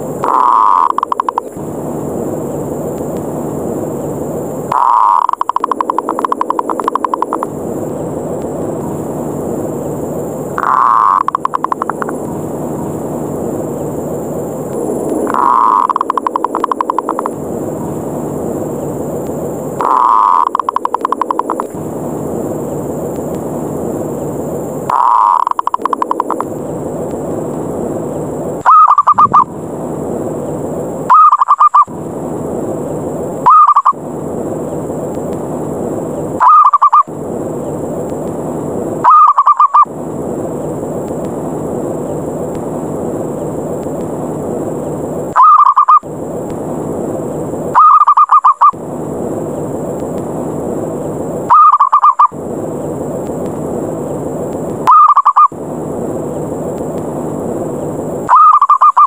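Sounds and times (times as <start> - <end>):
steady background noise: 0.0 - 59.0
dove cooing calls: 0.2 - 1.3, 4.7 - 7.2, 10.6 - 11.8, 15.3 - 17.2, 19.8 - 21.6, 24.9 - 26.4, 28.6 - 29.5, 31.1 - 31.9, 33.4 - 34.0, 36.4 - 37.1, 39.0 - 39.9, 45.4 - 46.0, 47.8 - 48.8, 51.5 - 52.3, 54.9 - 55.5, 58.3 - 59.0.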